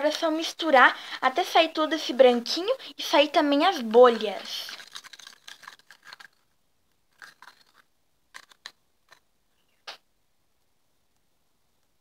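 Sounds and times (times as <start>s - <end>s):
plastic spoon scraping in cup: 4.0s - 6.4s, 7.1s - 9.2s.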